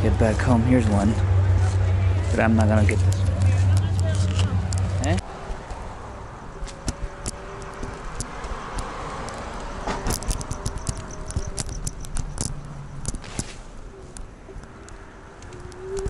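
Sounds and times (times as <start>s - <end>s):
phone handling clicks and rattles: 6.6s - 13.5s.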